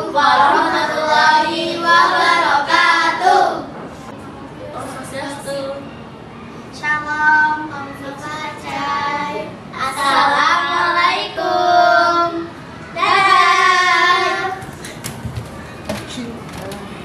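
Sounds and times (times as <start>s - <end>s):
girls singing in unison: 0.0s - 3.8s, 8.0s - 14.9s.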